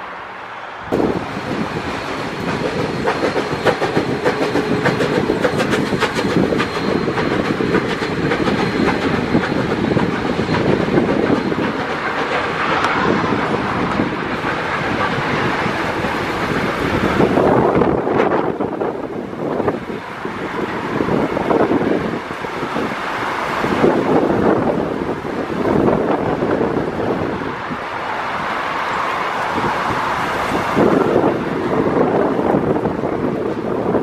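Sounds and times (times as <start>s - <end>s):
train wheels clattering over rail joints: 1.0s - 18.8s.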